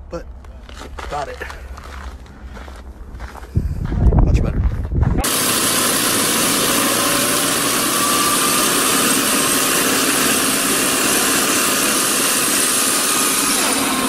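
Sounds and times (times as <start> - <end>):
machine engine running: 5.2 - 14.0.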